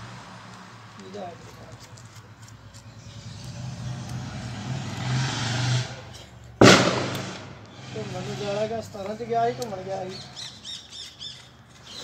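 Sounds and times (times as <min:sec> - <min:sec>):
vehicle engine revving: 0:02.8 - 0:10.2
loud bang: 0:06.6 - 0:08.9.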